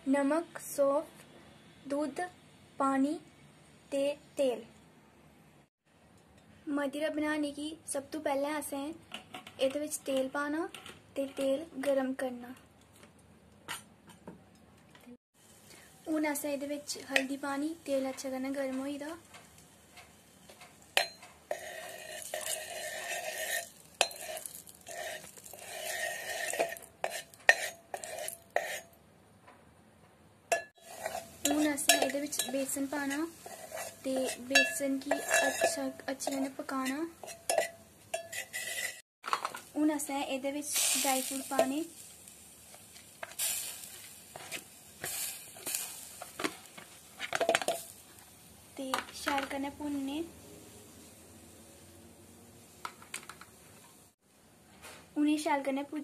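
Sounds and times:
sizzling in hot oil: 15.4s - 29.0s, 30.5s - 51.9s
spoon clinking on pot: 21.0s - 28.8s, 30.5s - 32.8s, 33.5s - 36.5s, 37.2s - 39.0s
metal spoon scraping a steel pot: 21.0s - 29.0s, 30.5s - 39.0s
spoon tapping on pan: 30.5s - 32.7s.

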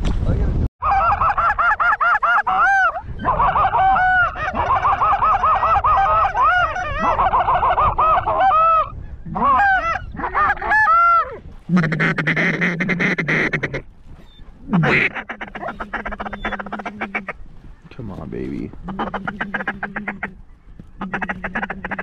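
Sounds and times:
goose call honks and clucks: 0.8s - 13.9s, 14.6s - 17.4s, 18.6s - 20.4s, 21.0s - 22.0s
low buzzy goose call note: 18.8s - 20.4s.

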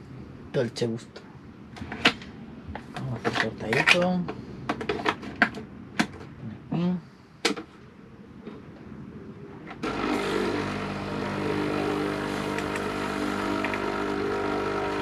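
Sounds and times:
coffee machine pump buzzing: 9.8s - 15.0s.

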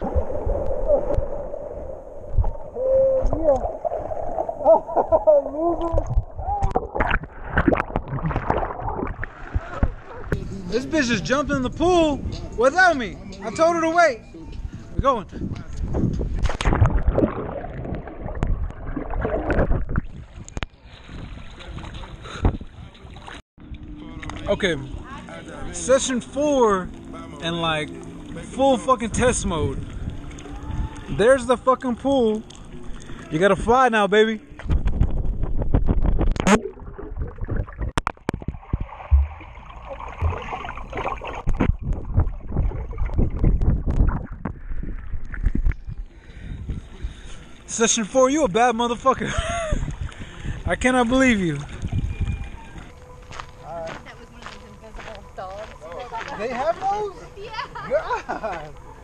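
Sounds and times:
pool water splashing: 0.0s - 11.1s, 16.4s - 34.7s, 36.4s - 43.2s
water lapping: 2.6s - 11.4s, 16.3s - 33.6s, 38.4s - 43.6s, 49.3s - 59.0s
low thumps: 34.6s - 46.0s
sharp splash into water: 38.3s - 41.8s.

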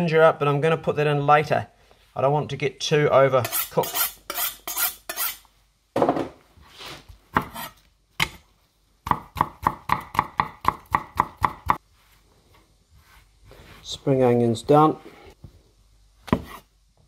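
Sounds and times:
knife on honing steel: 3.4s - 5.5s, 7.4s - 8.4s
knife chopping on wooden board: 7.3s - 8.4s, 9.1s - 11.8s, 16.3s - 16.6s.

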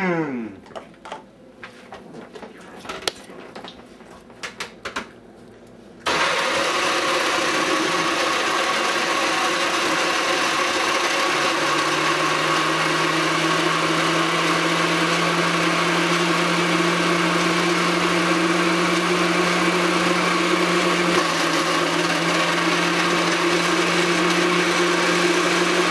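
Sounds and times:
blender motor running: 6.1s - 25.9s.

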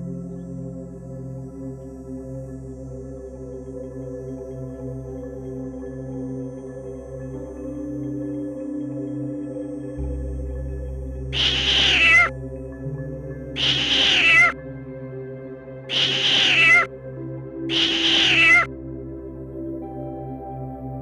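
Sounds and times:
soft background music: 0.0s - 21.0s
kitten meowing: 11.4s - 12.3s, 13.6s - 14.6s, 15.9s - 16.9s, 17.7s - 18.7s.

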